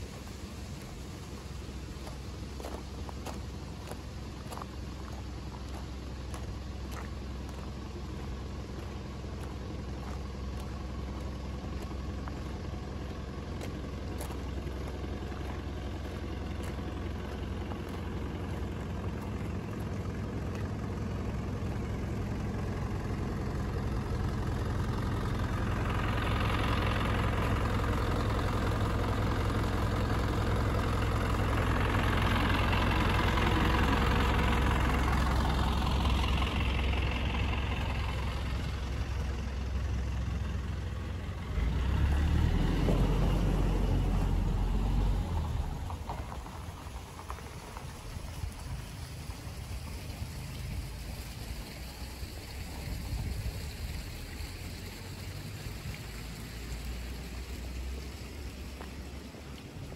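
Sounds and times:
steady low rumble: 0.0 - 41.7
motor vehicle passing slowly: 0.0 - 59.9.

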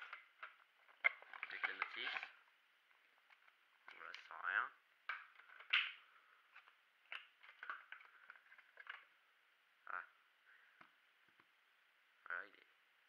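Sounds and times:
puzzle cube clicks: 0.0 - 2.4, 5.1 - 6.0, 6.6 - 9.1.

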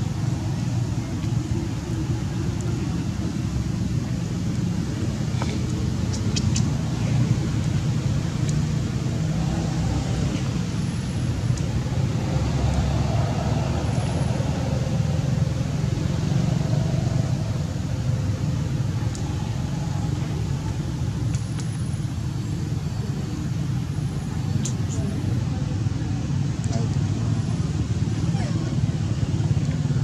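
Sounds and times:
faint clicks: 24.6 - 25.0.

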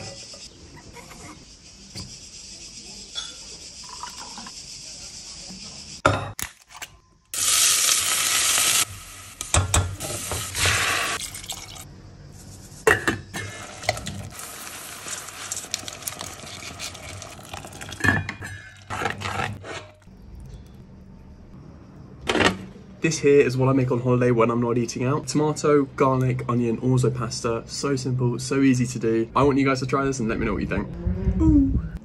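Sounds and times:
food sizzling: 7.4 - 20.4
spoon stirring in pot: 15.0 - 20.2.

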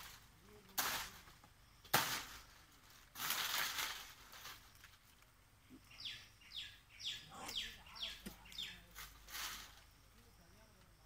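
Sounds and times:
dry palm fronds rustling: 0.0 - 5.4, 7.6 - 10.3.

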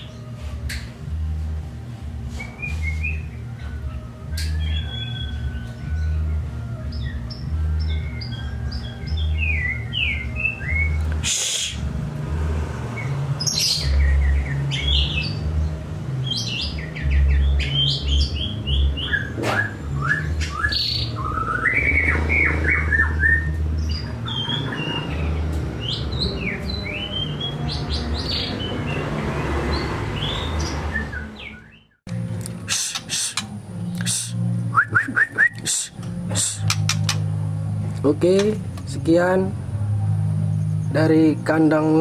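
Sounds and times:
bird singing whistled phrases: 17.4 - 23.6, 34.0 - 37.1.

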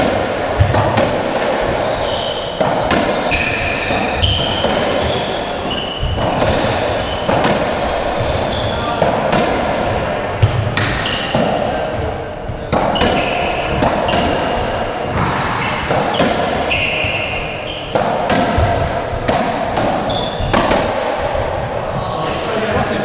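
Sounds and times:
ball hitting racquet and walls: 0.0 - 22.4
shoes squeaking on wooden floor: 1.7 - 9.0, 12.0 - 15.8, 16.5 - 19.0, 20.0 - 20.7.

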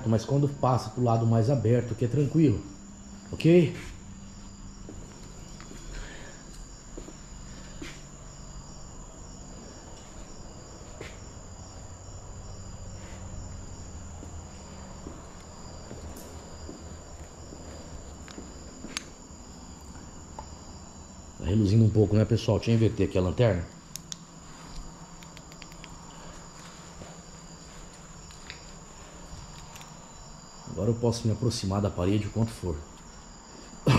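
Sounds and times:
low hum: 0.0 - 31.1
insects chirring: 0.0 - 33.9
faint clicks: 23.9 - 24.3, 25.2 - 26.0.

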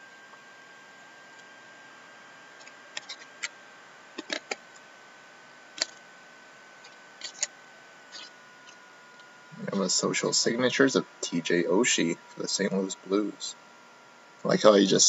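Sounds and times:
cards being shuffled: 2.6 - 3.5, 4.1 - 4.6, 6.8 - 7.5.

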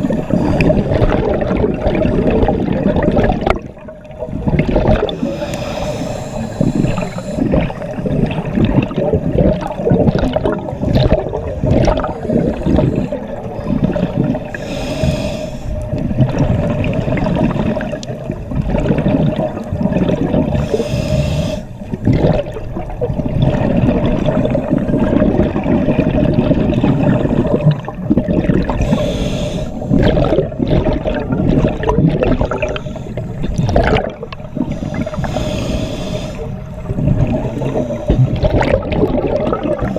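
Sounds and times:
underwater regulator breathing: 0.0 - 1.1, 4.7 - 9.0, 10.6 - 16.2, 20.4 - 22.6, 26.8 - 31.2, 32.3 - 39.9
exhaled bubbles rushing: 0.0 - 15.2, 15.8 - 20.9, 21.8 - 35.8, 36.4 - 39.9.

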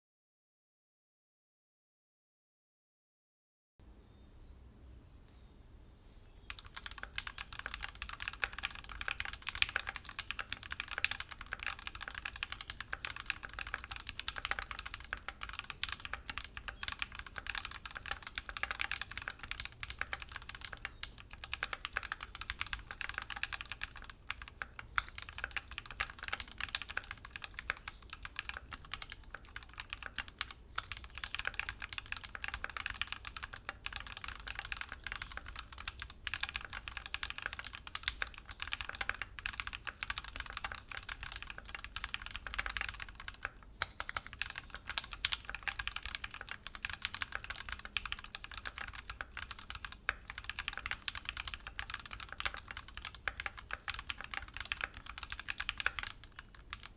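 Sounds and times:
fast typing on mechanical keyboard: 6.4 - 56.9.

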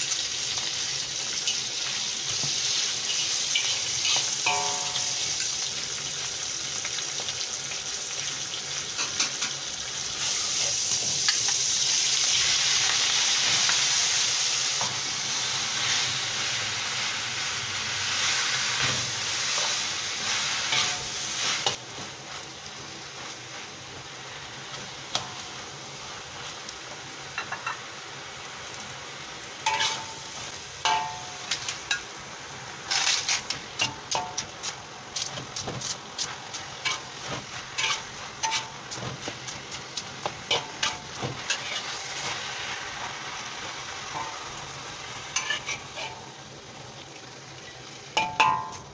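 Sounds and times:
hot oil sizzling in a wok: 0.0 - 48.9
metal spatula scraping a wok: 2.6 - 5.6, 18.0 - 21.8, 29.6 - 32.0, 32.8 - 43.1, 45.2 - 46.3
spatula clinking against wok: 3.6 - 5.5, 29.6 - 30.2, 30.8 - 32.1, 48.2 - 48.9.

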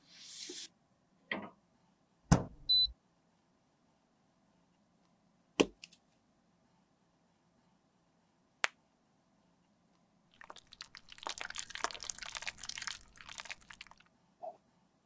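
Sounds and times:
gel squelching from squeeze bottle: 10.4 - 14.1.

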